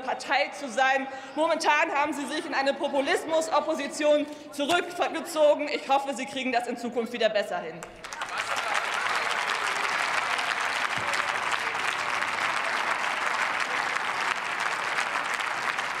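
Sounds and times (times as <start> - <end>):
applause: 7.8 - 16.0.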